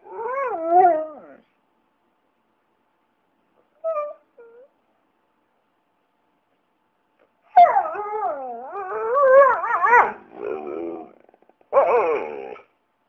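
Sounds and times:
dog howling with warbling pitch: 0:00.0 - 0:01.4, 0:07.5 - 0:12.7.

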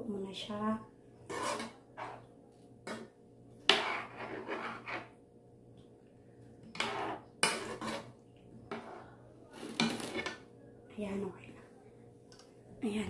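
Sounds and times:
metal spoon scraping wok: 0:01.2 - 0:02.3, 0:02.9 - 0:05.2, 0:06.7 - 0:08.1, 0:08.7 - 0:10.4.

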